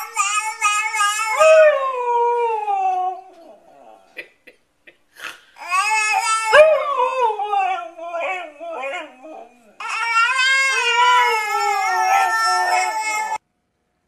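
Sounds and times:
husky howling: 6.3s - 13.4s.

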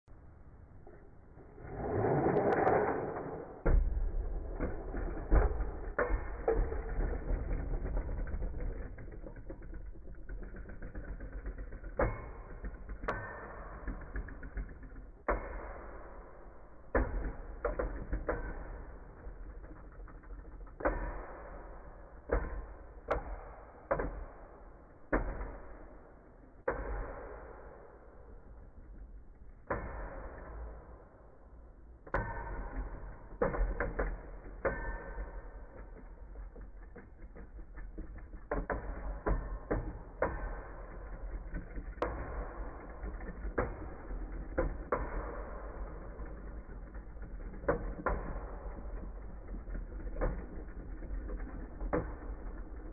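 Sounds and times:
rattling clatter: 2.6s - 15.4s.

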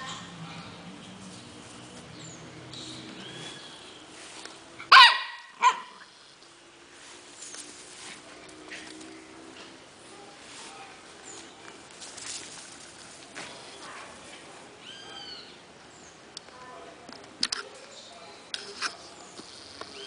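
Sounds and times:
small dog barking: 4.9s - 6.0s.

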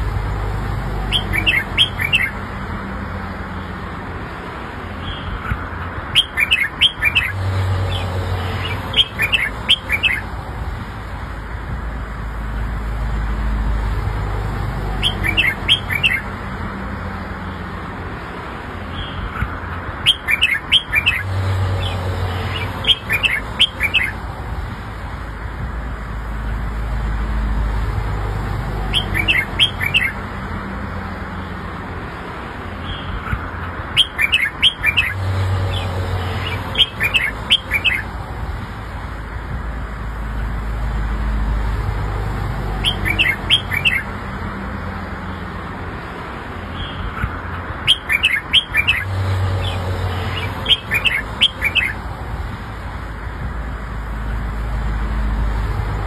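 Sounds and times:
bird singing bright phrases: 0.9s - 2.4s, 5.0s - 10.3s, 14.8s - 16.4s, 18.9s - 24.2s, 28.7s - 30.3s, 32.8s - 38.2s, 42.6s - 44.2s, 46.7s - 52.0s.

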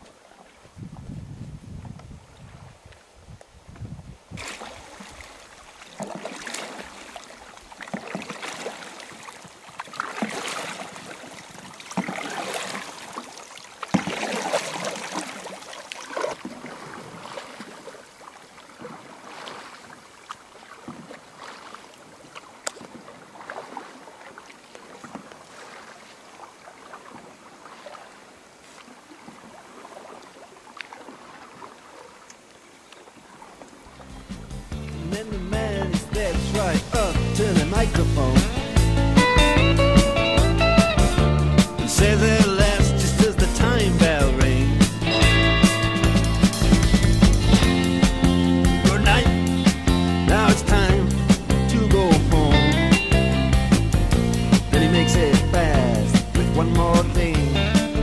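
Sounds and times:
paddle strokes splashing: 0.0s - 0.8s, 1.8s - 58.0s
water washing along hull: 4.3s - 41.0s.

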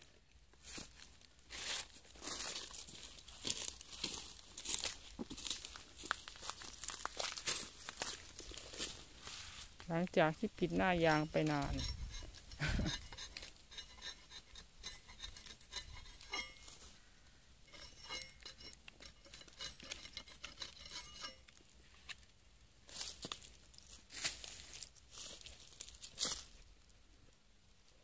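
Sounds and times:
knife shaving tree bark: 10.4s - 16.9s, 17.7s - 21.6s.

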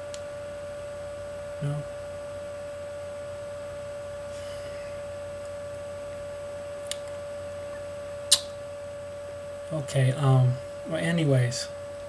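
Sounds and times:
steady electrical tone and hum: 0.0s - 12.0s
short click: 8.3s - 8.5s.

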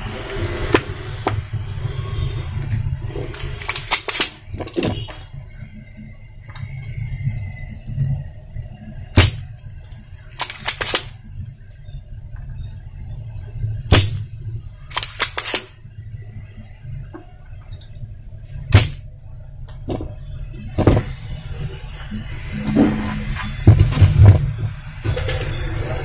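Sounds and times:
steady low hum: 0.0s - 26.0s
desoldering pump snapping: 2.7s - 5.2s, 9.1s - 11.2s, 14.9s - 15.8s, 18.7s - 19.1s.

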